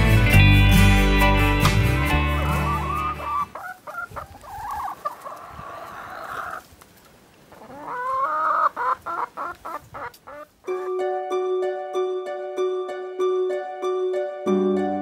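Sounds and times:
hen clucking: 0:01.9 - 0:06.8, 0:07.5 - 0:10.9.

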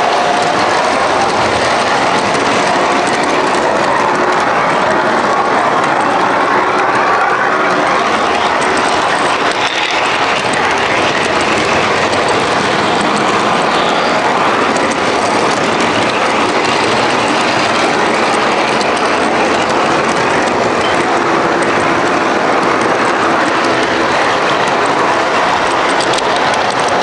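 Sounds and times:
model train rolling on track: 0:00.0 - 0:27.0.

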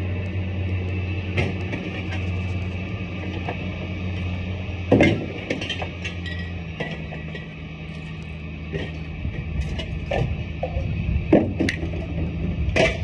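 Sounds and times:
steady low hum: 0:00.0 - 0:13.0
scrap metal clanking: 0:04.9 - 0:12.1.

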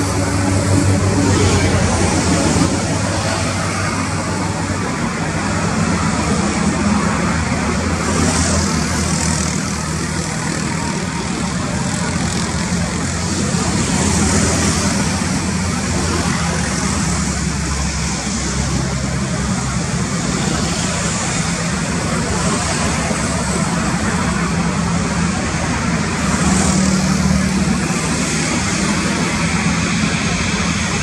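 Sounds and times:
jet engines rumbling with whine: 0:00.0 - 0:31.0.

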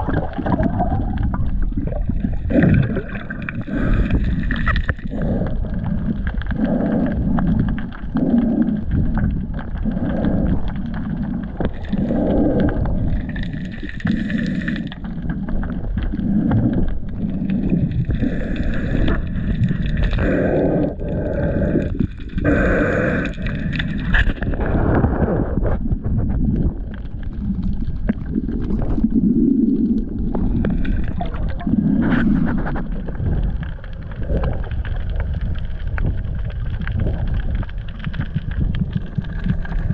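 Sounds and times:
muffled underwater water sloshing: 0:00.0 - 0:39.9.

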